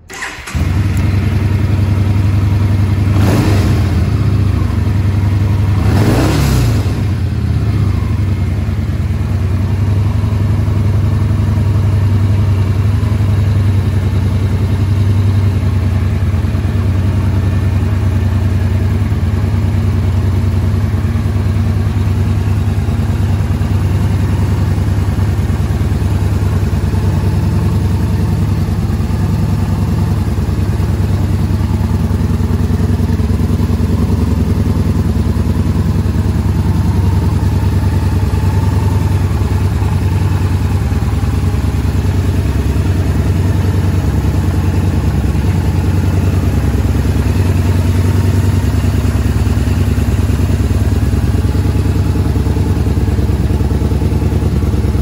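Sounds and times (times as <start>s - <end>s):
motorcycle engine idling and revving: 0.0s - 55.0s.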